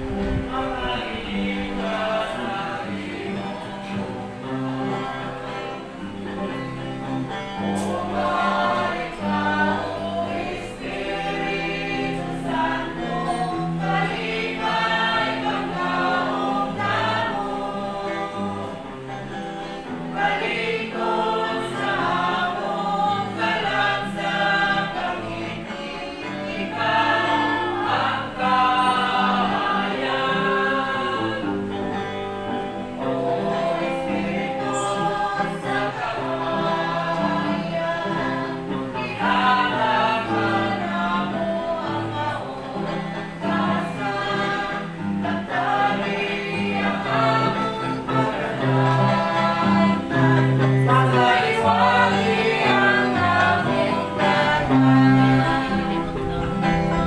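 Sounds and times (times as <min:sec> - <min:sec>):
choir singing religious song: 0:00.0 - 0:57.0
instrumental accompaniment with bass: 0:18.6 - 0:57.0.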